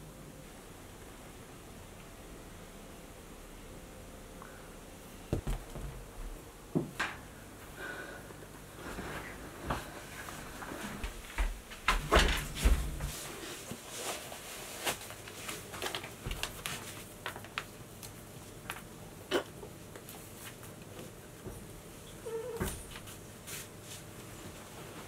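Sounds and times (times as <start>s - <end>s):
heavy thumps: 5.3s - 7.0s.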